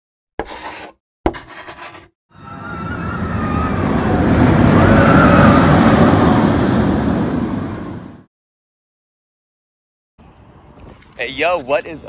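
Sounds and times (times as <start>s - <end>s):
roller coaster train rushing: 2.4s - 8.3s.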